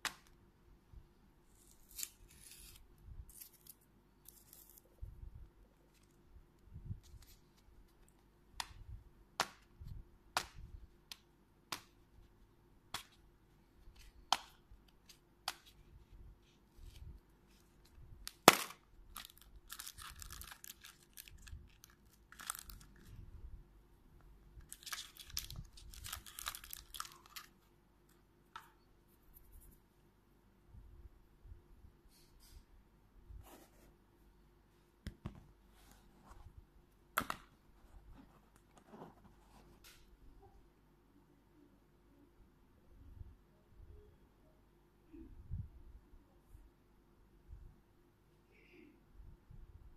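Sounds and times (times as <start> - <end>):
plastic crinkling: 17.6 - 23.2, 24.6 - 27.6.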